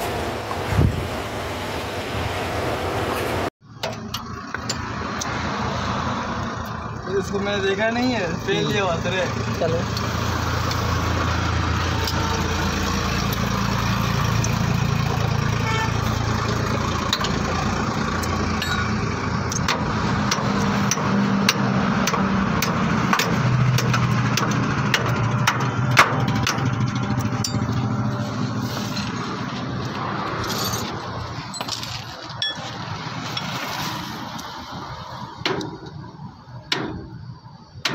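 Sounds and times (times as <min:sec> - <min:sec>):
engine idling: 0:06.4 - 0:21.6, 0:22.6 - 0:29.5.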